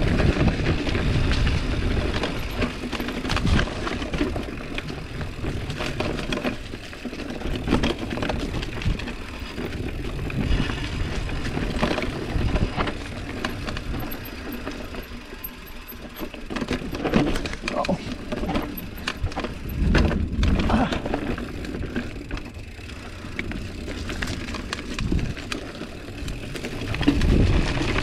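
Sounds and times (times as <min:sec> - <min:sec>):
wind buffeting microphone: 0:00.0 - 0:04.0, 0:07.5 - 0:14.3, 0:18.9 - 0:22.8, 0:23.5 - 0:28.0
bike rattling over bumps: 0:00.0 - 0:28.0
bike tyres on dirt: 0:00.0 - 0:28.0.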